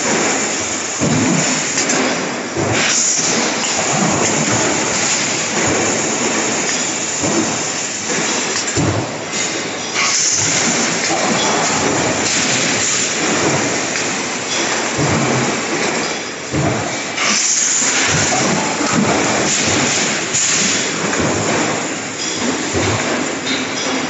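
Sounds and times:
punch presses rumbling and clattering: 0.0s - 24.0s
heavy press thumps: 1.0s - 6.6s, 8.8s - 9.3s, 14.8s - 24.0s.

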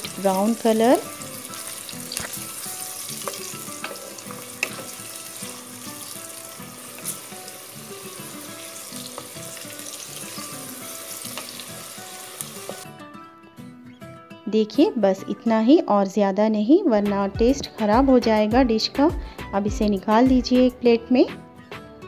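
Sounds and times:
onions sizzling in oil: 0.0s - 12.9s.

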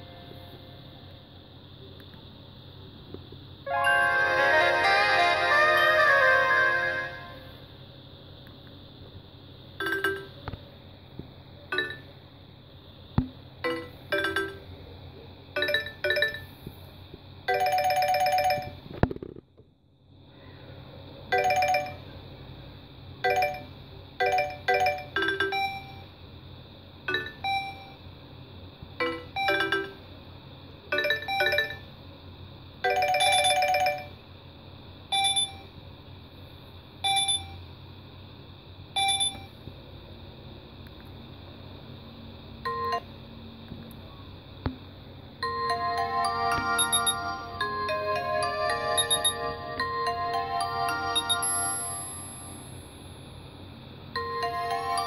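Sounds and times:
phone alert tone chimes: 45.4s - 52.6s.

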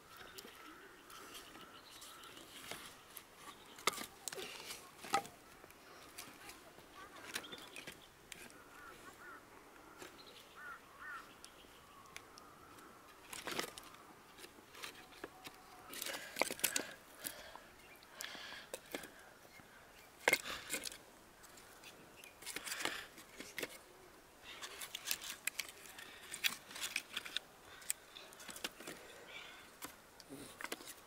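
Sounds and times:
birds chirping faintly: 0.0s - 31.0s
firewood clacking: 3.5s - 6.4s.

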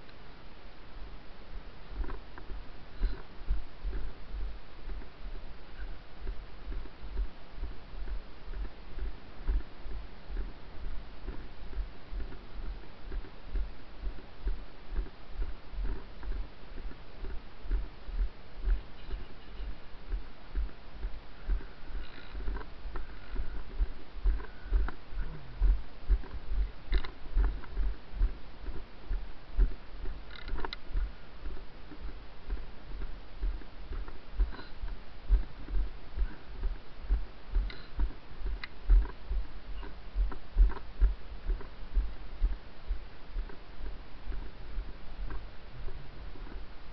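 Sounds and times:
faint clicks: 18.6s - 28.9s, 29.6s - 39.2s.

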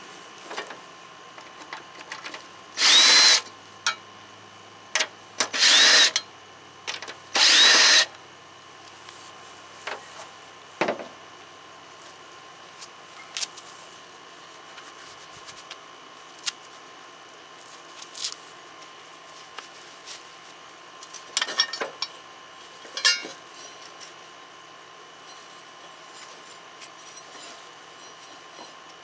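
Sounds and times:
tools and metal parts clicking: 21.4s - 22.2s, 22.9s - 23.8s.

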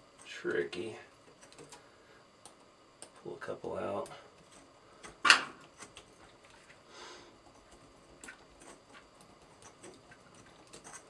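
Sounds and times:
tools and screws clicking: 7.6s - 11.0s.

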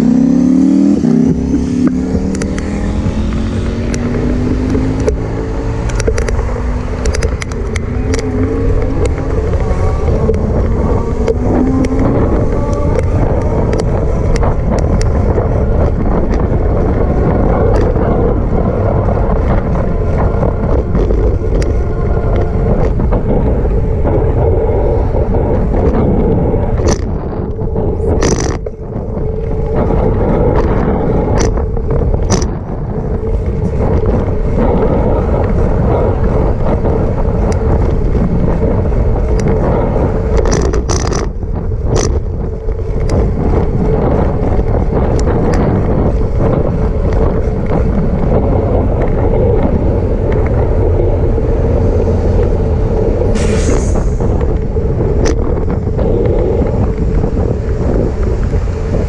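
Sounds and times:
bicycle rolling rumble: 0.0s - 59.0s
wind: 0.0s - 59.0s
sharp clicks or knocks: 0.2s - 18.0s.

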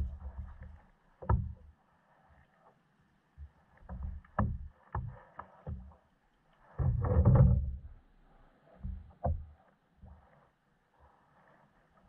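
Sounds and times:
knocks on plastic kayak hull: 3.9s - 5.9s.

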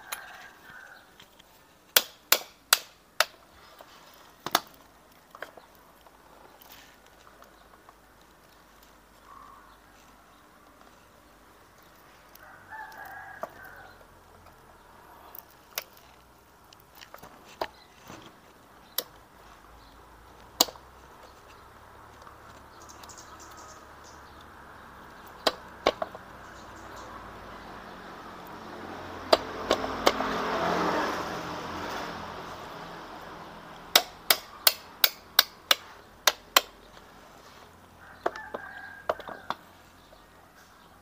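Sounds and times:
rooster crowing: 0.0s - 1.2s, 12.3s - 14.1s, 38.0s - 39.8s
sharp metal clicks and knocks: 1.2s - 6.7s, 20.4s - 23.2s, 25.2s - 26.3s, 33.8s - 37.0s.

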